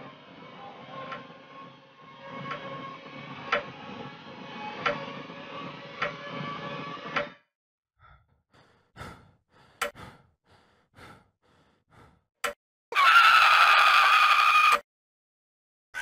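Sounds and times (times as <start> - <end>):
faint breaths: 8.0 - 12.3.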